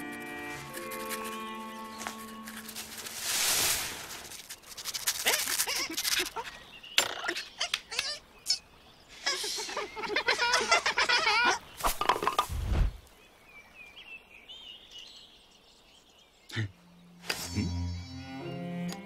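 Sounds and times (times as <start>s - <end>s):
cartoon beavers chattering squeaks: 5.0s - 6.6s, 9.2s - 11.6s.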